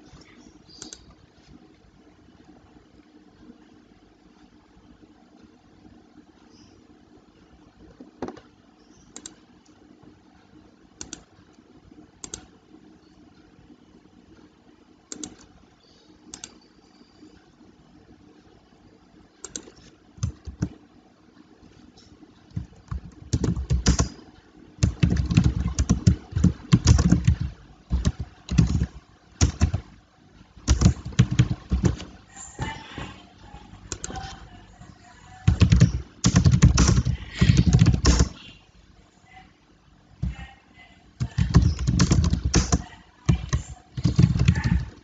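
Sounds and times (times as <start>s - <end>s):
computer keyboard typing: 11.0s - 11.3s, 15.1s - 15.5s, 16.3s - 16.7s, 19.4s - 20.8s, 22.0s - 30.0s, 30.6s - 32.8s, 33.8s - 34.5s, 35.4s - 38.5s, 41.2s - 45.0s.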